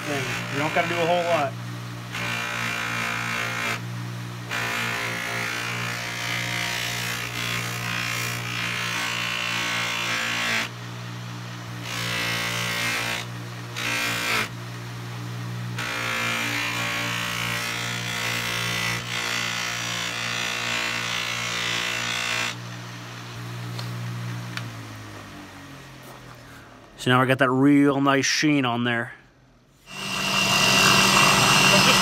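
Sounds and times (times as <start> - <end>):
bench buffer running: 0.0 - 26.9, 29.8 - 32.0
wood hissing against buffing wheel: 29.8 - 32.0.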